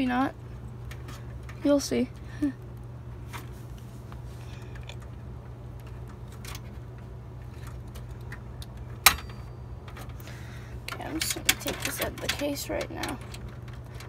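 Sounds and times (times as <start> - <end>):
steady low hum: 0.0 - 14.0
computer parts clicking: 10.9 - 14.0.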